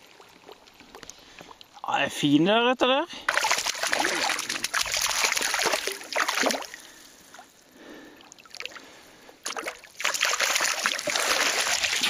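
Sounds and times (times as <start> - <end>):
fish thrashing and splashing: 3.3 - 7.0, 8.3 - 12.0.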